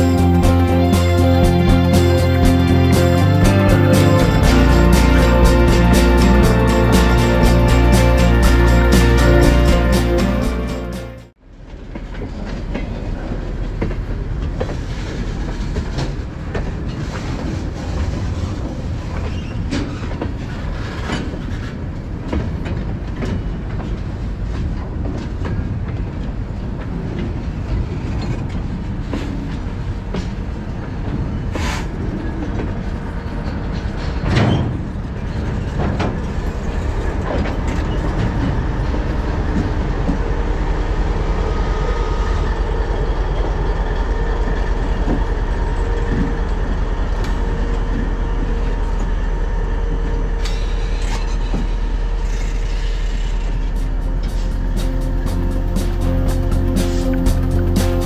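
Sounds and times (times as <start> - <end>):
locomotive engine rumble: 0.0 - 11.4, 29.7 - 58.0
train clank: 11.7 - 58.0
train wheels clicking on rail joints: 11.7 - 58.0.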